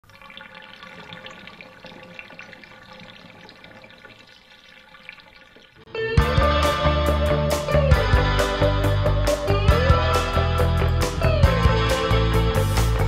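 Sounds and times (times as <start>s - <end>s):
water drips and splashes: 0.0s - 5.9s
band music with electric guitar: 5.9s - 13.0s.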